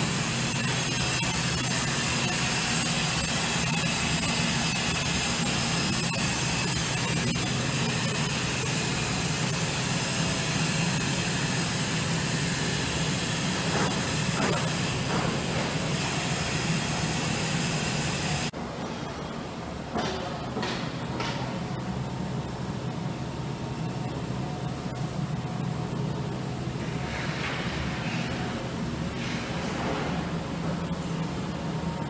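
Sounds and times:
machinery drone: 0.0 - 18.6.

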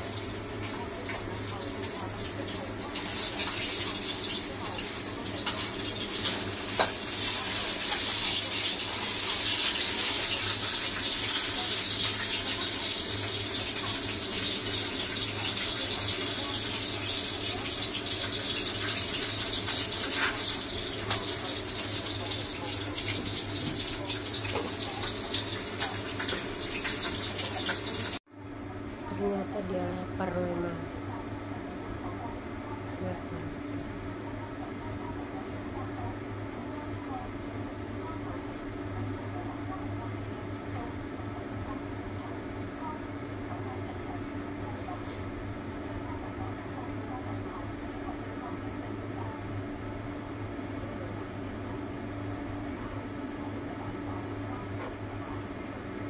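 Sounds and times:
running water: 0.0 - 28.2.

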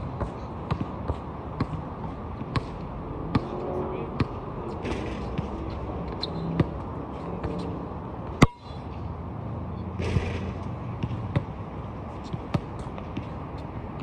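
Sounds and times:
basketball bouncing: 0.1 - 3.6, 4.2 - 5.6, 10.0 - 11.6, 12.2 - 13.4.

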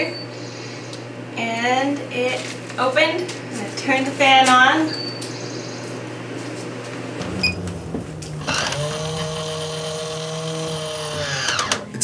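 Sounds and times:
fan motor whine: 0.0 - 12.0
low steady hum: 7.0 - 11.5.

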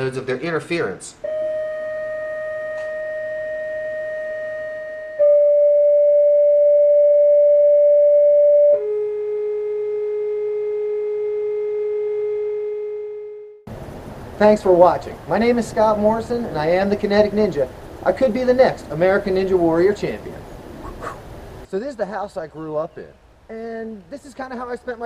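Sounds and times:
vibrating metal plate tone: 1.2 - 8.8.

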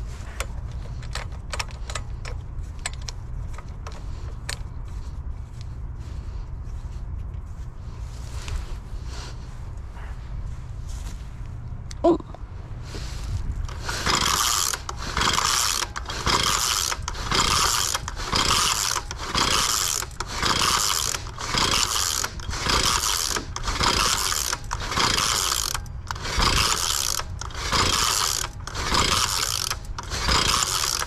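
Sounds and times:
engine cranking: 0.0 - 4.7, 13.6 - 31.0
starter cord rasping: 13.6 - 31.0.

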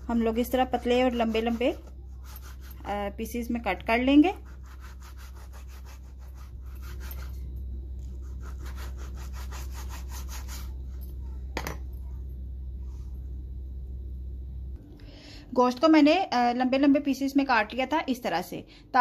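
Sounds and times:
steady low hum: 0.0 - 19.0
knife sawing through meat: 4.3 - 7.4, 8.2 - 10.7.

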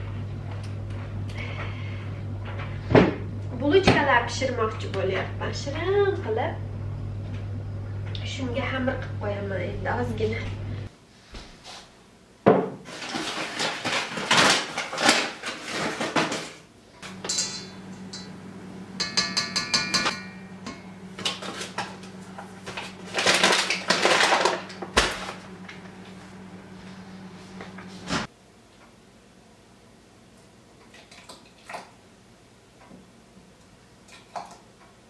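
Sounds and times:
paper bag rustling: 12.8 - 16.7, 21.2 - 26.2
metal cup clinking against bowl: 17.2 - 18.3, 19.0 - 20.9.

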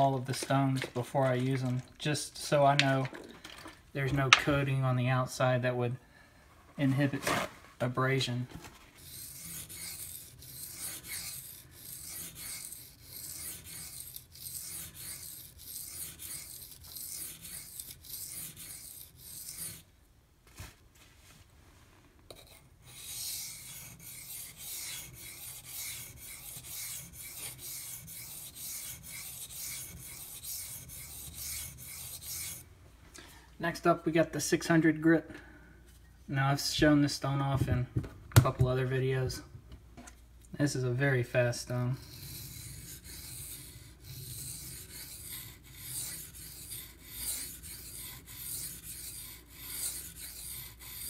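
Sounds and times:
knife blade on whetstone: 9.0 - 19.8, 42.0 - 51.0.

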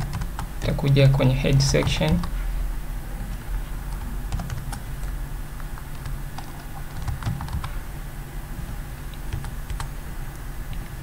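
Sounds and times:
keyboard typing: 0.0 - 2.3, 3.3 - 7.8, 9.0 - 9.9
low steady hum: 0.0 - 11.0.

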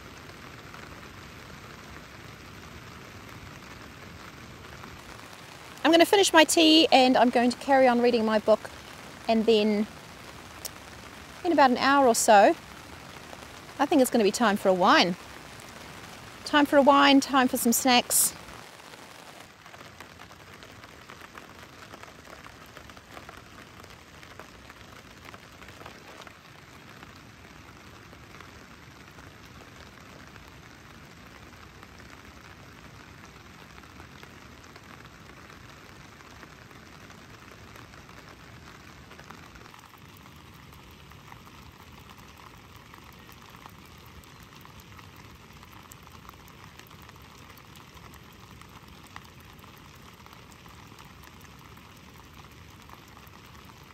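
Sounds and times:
rain on a tarp: 0.0 - 53.9.

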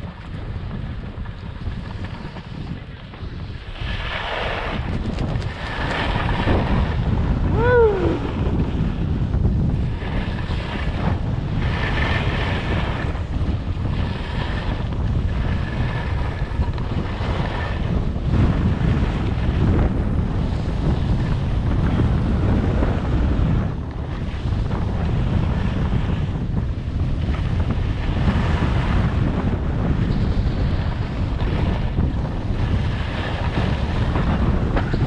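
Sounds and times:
wind buffeting microphone: 0.0 - 35.0
skis sliding on snow: 3.2 - 6.8.

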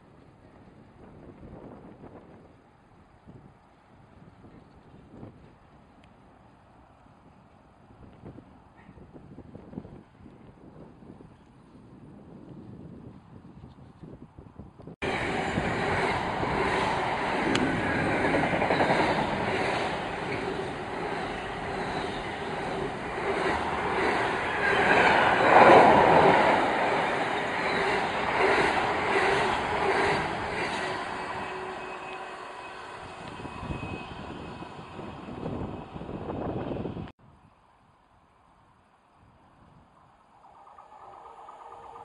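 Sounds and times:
freight train wheels on rail: 15.0 - 37.1, 40.3 - 42.0.

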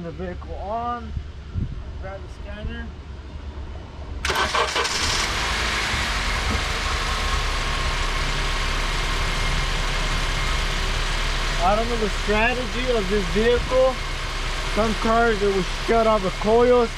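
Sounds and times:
car engine idling: 0.0 - 16.9
car engine cranking: 4.2 - 16.9.

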